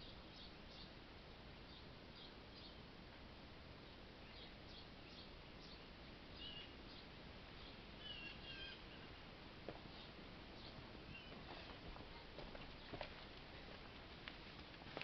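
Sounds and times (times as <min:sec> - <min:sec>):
small birds chirping: 0:00.0 - 0:01.0, 0:01.6 - 0:02.9, 0:03.8 - 0:13.9
background hiss: 0:00.0 - 0:15.0
pitched bird calls: 0:04.2 - 0:09.2, 0:09.9 - 0:11.7.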